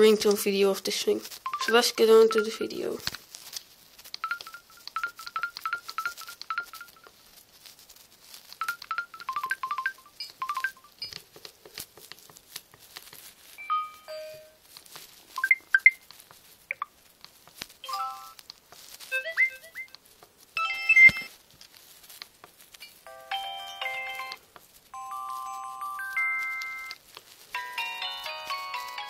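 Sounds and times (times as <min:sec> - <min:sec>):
phone quick repeated beeps: 0:01.5 - 0:02.6, 0:04.2 - 0:07.1, 0:08.6 - 0:10.9, 0:15.4 - 0:16.0, 0:20.6 - 0:21.3
phone chiming melodies: 0:01.5 - 0:02.8, 0:04.2 - 0:07.1, 0:08.6 - 0:11.2, 0:13.6 - 0:14.6, 0:23.1 - 0:24.4, 0:25.0 - 0:27.0, 0:27.6 - 0:29.0
sharp clicks: 0:04.1 - 0:07.2, 0:08.5 - 0:12.4.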